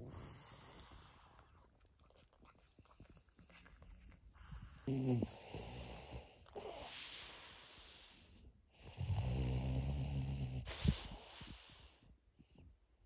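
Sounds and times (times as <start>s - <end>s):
dog snoring: 0.0s - 1.5s, 3.1s - 12.0s.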